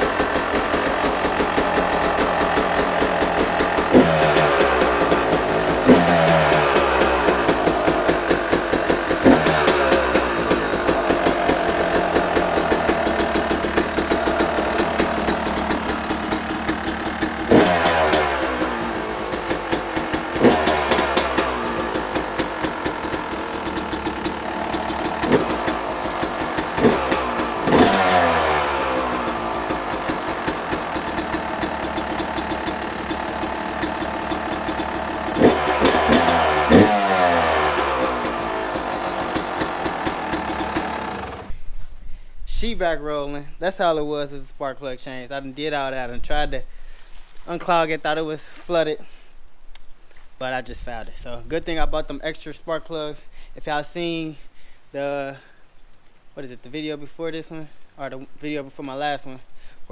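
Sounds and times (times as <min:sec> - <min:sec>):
dirt bike engine revving: 0:00.0 - 0:41.6.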